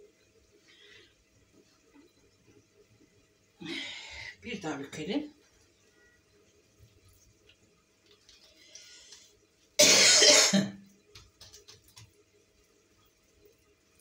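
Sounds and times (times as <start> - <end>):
pastry crackling and rustling: 6.7 - 9.2, 11.0 - 14.0
person coughing: 9.8 - 10.8.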